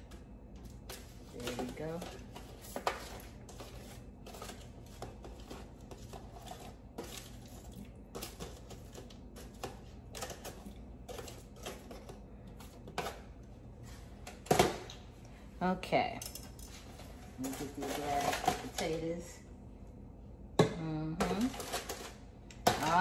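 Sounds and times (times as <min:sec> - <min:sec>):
steady low hum: 0:00.0 - 0:23.0
foil crinkling and scraping: 0:17.4 - 0:19.0.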